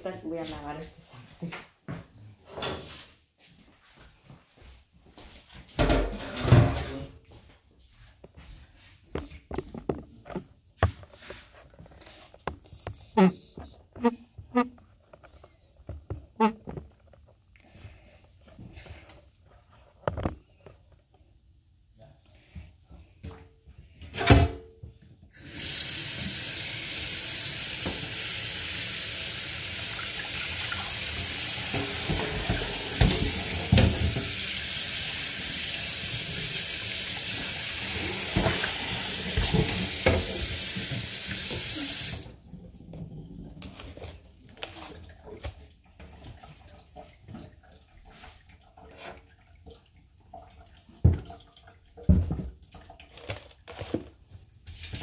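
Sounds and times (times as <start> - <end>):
tap water running into sink: 25.4 - 42.4.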